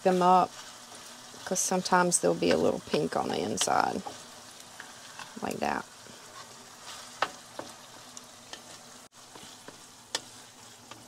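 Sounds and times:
meat and onions sizzling in a skillet: 0.0s - 11.0s
spatula stirring meat: 0.0s - 11.0s
spatula tapping a pan: 7.2s - 7.8s.

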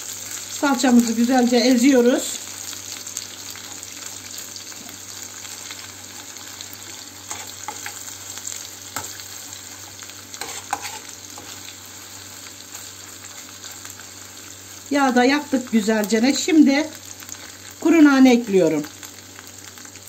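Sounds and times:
paste sizzling in hot oil: 0.0s - 20.0s
metal spoon scraping a pan: 6.9s - 8.0s, 8.9s - 12.1s.

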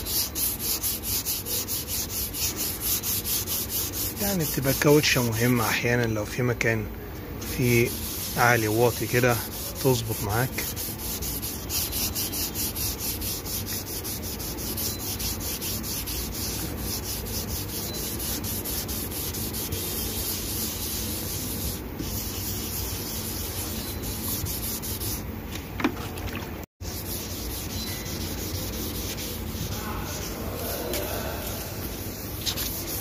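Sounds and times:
sandpaper rubbing strokes: 0.0s - 6.8s, 7.4s - 25.3s, 26.8s - 33.0s.

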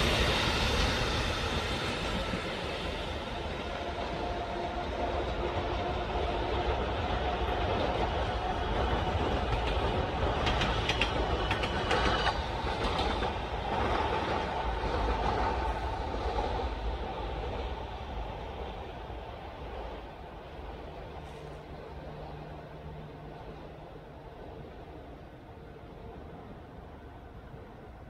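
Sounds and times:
train rumbling on rails: 0.0s - 28.0s
wheels clicking over rail joints: 7.7s - 16.5s.

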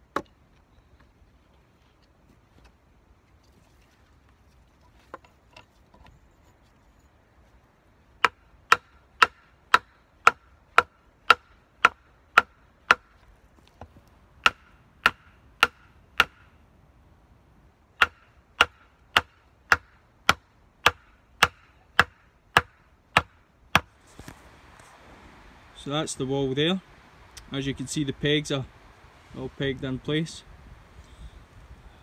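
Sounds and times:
hammering wooden pegs: 8.2s - 13.2s, 14.4s - 16.5s, 18.0s - 23.9s.

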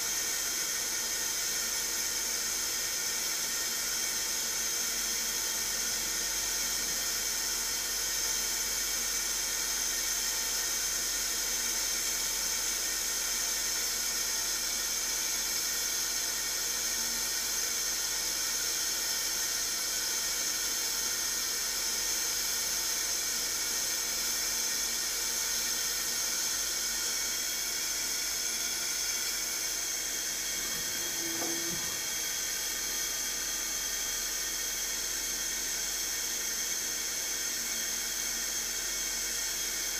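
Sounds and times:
lathe high-pitched whine: 0.0s - 39.9s
brief lower tone: 30.9s - 32.0s.

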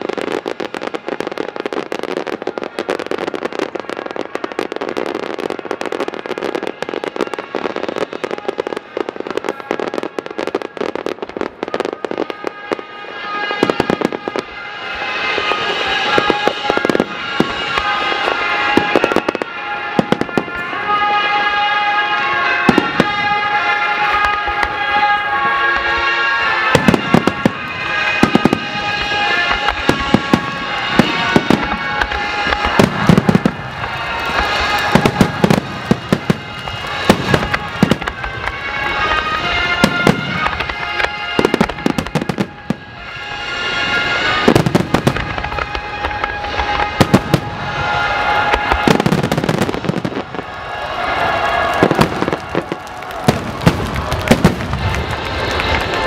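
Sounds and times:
fireworks banging and crackling: 0.0s - 56.0s.

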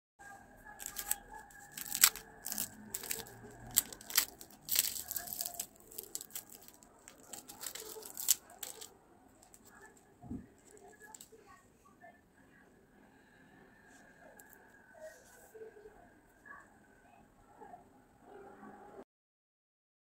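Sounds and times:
pastry crackling and crunching: 0.4s - 11.6s.

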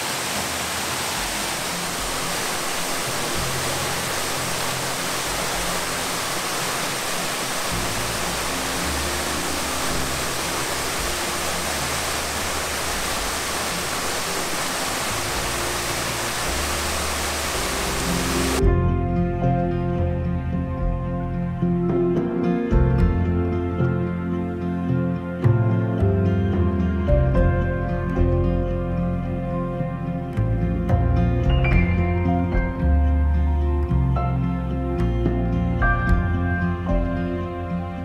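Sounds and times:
waterfall rushing: 0.0s - 18.6s
soft background music: 0.2s - 38.0s.

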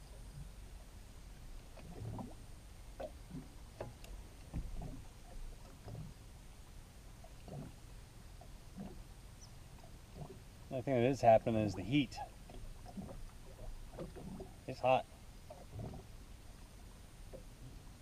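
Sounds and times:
waves lapping against boat hull: 0.0s - 18.0s.

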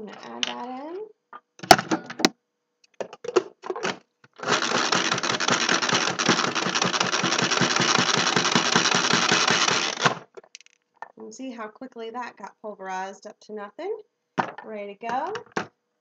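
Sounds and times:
food processor blades whirring: 4.4s - 10.3s.

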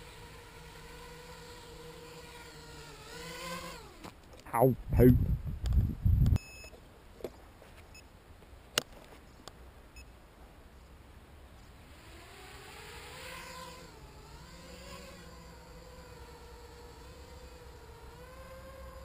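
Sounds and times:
drone motors whining: 0.0s - 4.3s, 11.9s - 19.0s.

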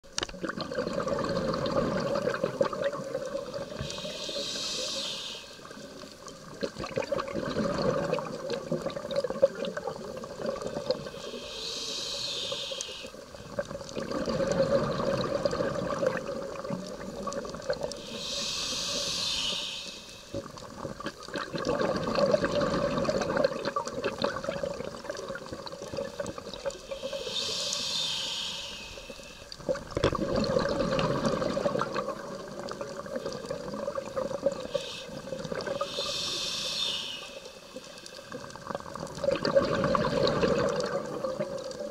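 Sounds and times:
exhaled bubbles gurgling: 0.1s - 41.9s
diver inhaling through regulator: 3.5s - 5.7s, 11.0s - 13.2s, 17.9s - 20.4s, 26.8s - 29.6s, 34.6s - 38.3s.

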